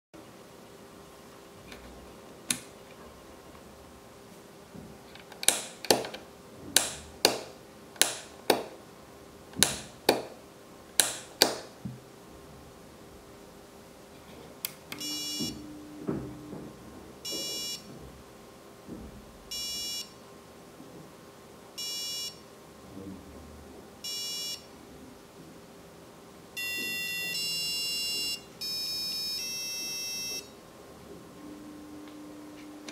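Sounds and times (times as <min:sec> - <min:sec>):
short high beeps: 0:15.0 - 0:15.7, 0:26.6 - 0:30.5
longer electronic tones: 0:15.0 - 0:17.9, 0:26.6 - 0:30.6, 0:31.3 - 0:32.9.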